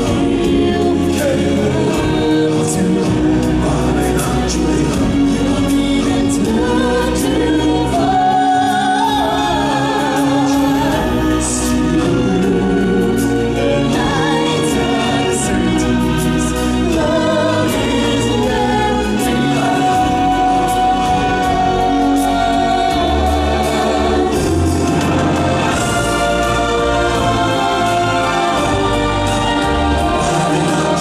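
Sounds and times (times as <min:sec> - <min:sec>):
instrumental accompaniment: 0:00.0 - 0:31.0
voices singing: 0:00.0 - 0:31.0.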